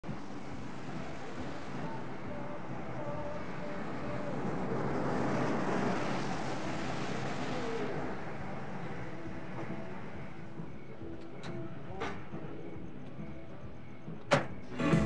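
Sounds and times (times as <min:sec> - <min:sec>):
tyres hissing on wet pavement: 0:00.0 - 0:10.6.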